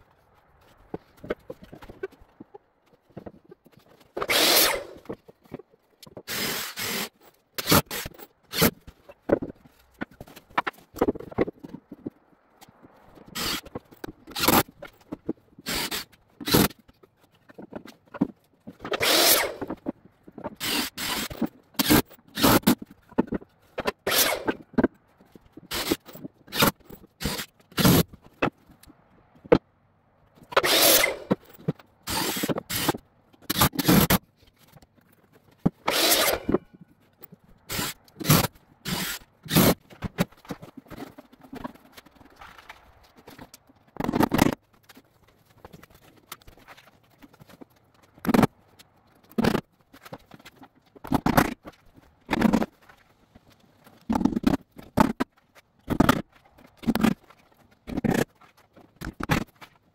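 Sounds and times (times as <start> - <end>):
wood knocking and scraping: 0.2 - 6.4, 7.9 - 29.7, 30.4 - 59.8
cordless drill driving screws: 4.2 - 5.0, 6.3 - 8.7, 13.4 - 13.7, 15.7 - 16.7, 18.9 - 19.7, 20.6 - 22.6, 24.1 - 24.6, 25.7 - 28.0, 30.6 - 31.4, 32.1 - 34.2, 35.9 - 36.5, 37.7 - 39.8.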